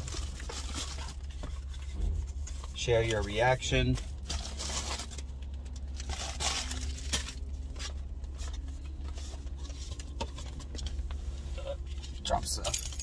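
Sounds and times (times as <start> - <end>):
plastic packaging crinkling: 0.0 - 1.9, 4.0 - 10.1
steady low hum: 0.0 - 13.0.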